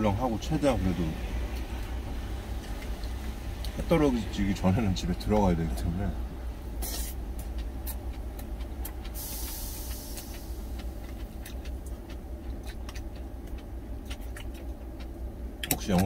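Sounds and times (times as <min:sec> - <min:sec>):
idling truck engine hum: 0:00.0 - 0:16.0
chewing: 0:01.4 - 0:03.9, 0:06.8 - 0:16.0
brief hiss: 0:06.8 - 0:07.2, 0:09.2 - 0:10.6.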